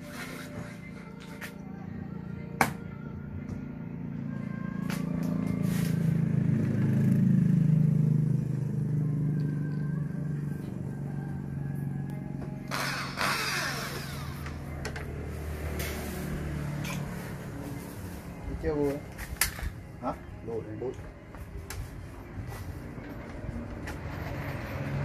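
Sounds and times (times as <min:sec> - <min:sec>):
vehicle engine passing by: 0:03.8 - 0:19.2, 0:21.8 - 0:25.0.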